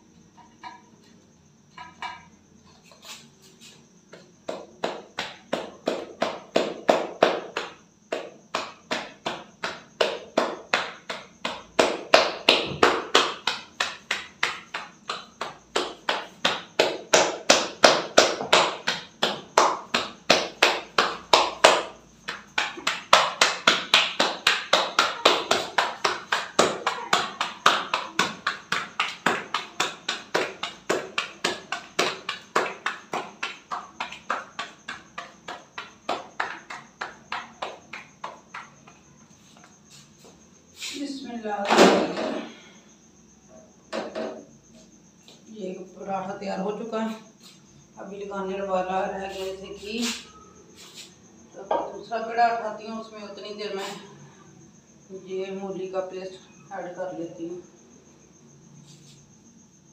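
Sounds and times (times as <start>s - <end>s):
dough slapped between palms: 4.1s - 39.7s.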